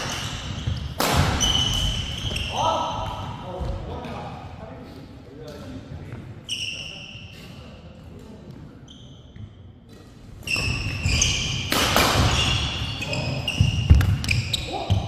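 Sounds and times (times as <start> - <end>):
sneaker squeaks: 0.0 - 3.4, 6.1 - 7.8, 8.5 - 15.0
racket hitting shuttlecock: 0.9 - 2.0, 9.9 - 12.8.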